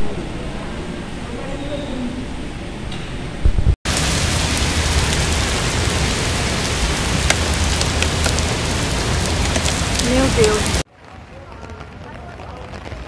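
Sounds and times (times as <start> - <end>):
low rumble: 0.0 - 10.8
heavy rain on a car: 3.9 - 13.0.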